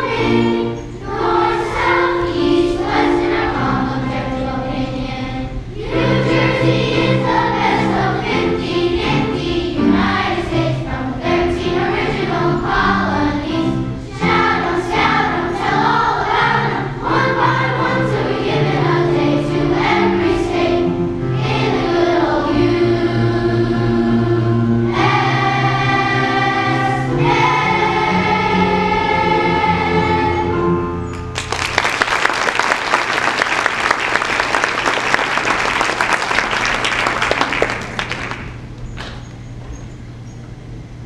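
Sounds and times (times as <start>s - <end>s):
children's choir singing: 0.0s - 31.2s.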